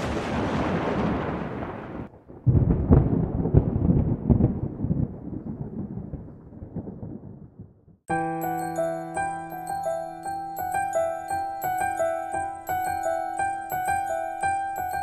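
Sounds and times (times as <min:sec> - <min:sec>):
rolling thunder with crackles: 0:00.0 - 0:08.0.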